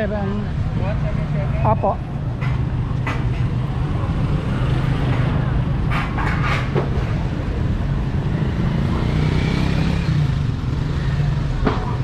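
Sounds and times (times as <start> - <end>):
street traffic noise: 0.0 - 12.0.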